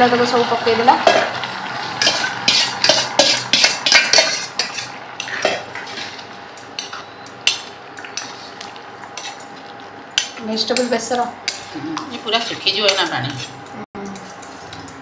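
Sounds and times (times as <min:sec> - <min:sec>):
ladle clinking and scraping pan: 0:01.0 - 0:09.6.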